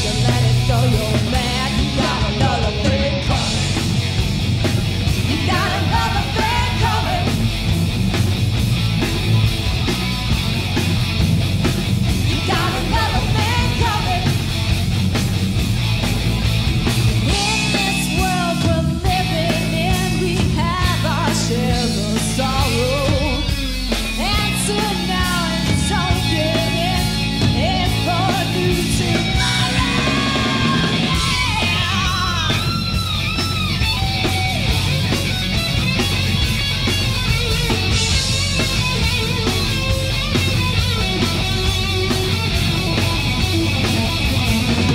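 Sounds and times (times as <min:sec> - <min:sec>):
woman singing: 0:00.0 - 0:03.6, 0:05.3 - 0:07.3, 0:12.3 - 0:14.4, 0:17.3 - 0:23.5, 0:24.2 - 0:32.8
rock band playing: 0:00.0 - 0:44.9.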